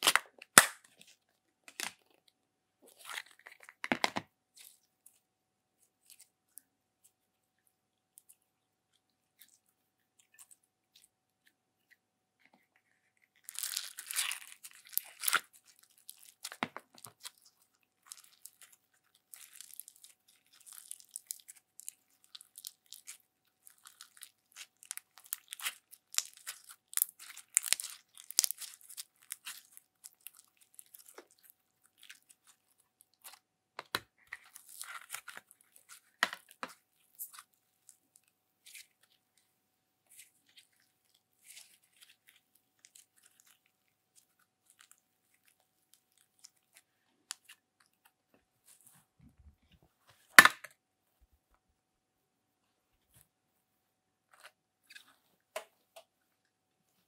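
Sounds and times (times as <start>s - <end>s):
slime crackling and popping: 0.0s - 1.0s, 13.4s - 33.4s.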